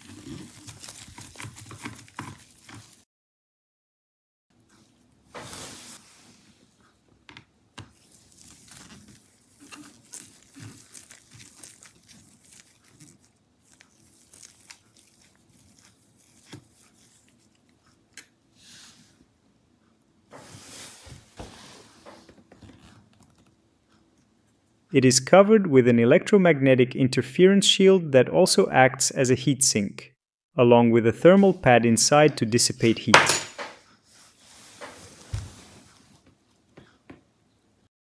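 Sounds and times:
gloved hands rustling: 0.0s - 3.0s, 7.8s - 17.7s.

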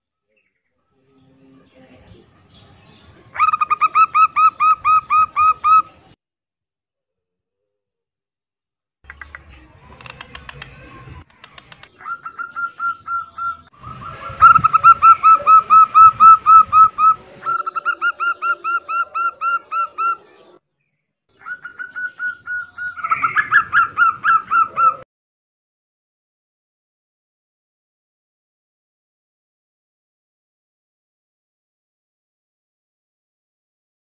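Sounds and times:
dove cooing: 11.9s - 20.4s, 21.4s - 25.0s.

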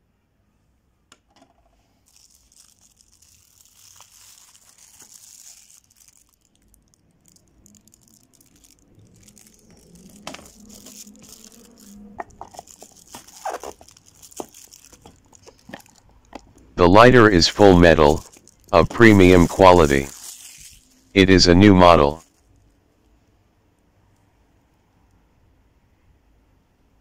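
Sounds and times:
cardboard rustling and scraping: 9.7s - 16.0s.

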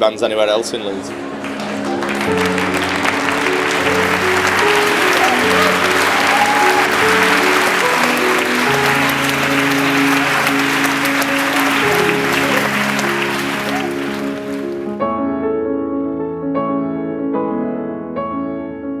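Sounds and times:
music with long held notes: 0.0s - 19.0s
audience applauding: 0.7s - 15.0s.

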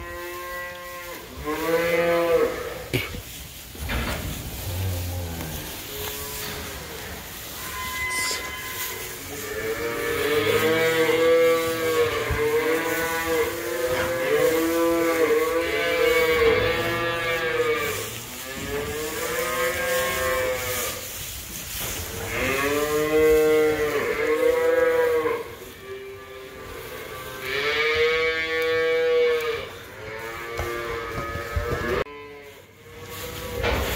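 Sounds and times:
cattle mooing: 4.5s - 21.0s.

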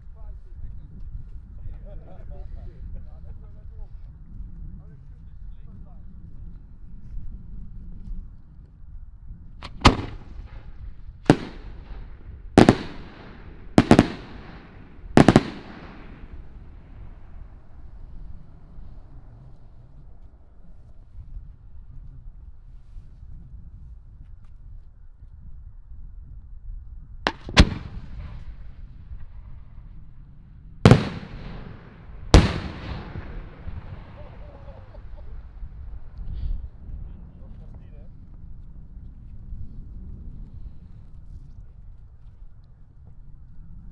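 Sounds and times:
firework shells bursting: 9.6s - 17.0s, 27.3s - 28.6s, 30.9s - 35.1s
rumbling echo: 9.6s - 18.6s, 27.3s - 29.8s, 30.9s - 36.8s.

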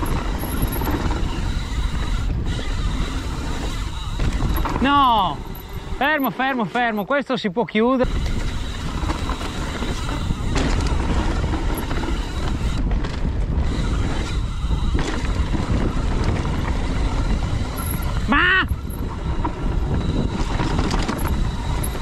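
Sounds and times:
wind on microphone: 0.0s - 6.1s, 8.0s - 22.0s.

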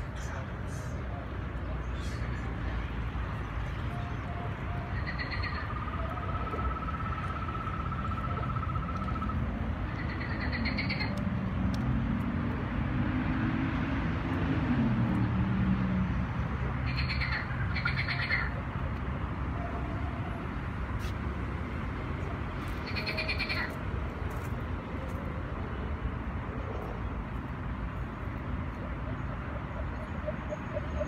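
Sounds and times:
frog trill over loudspeakers: 4.0s - 11.2s, 16.8s - 18.6s, 22.8s - 23.8s
frog croaks: 5.0s - 11.2s, 16.8s - 18.6s, 22.8s - 23.7s.

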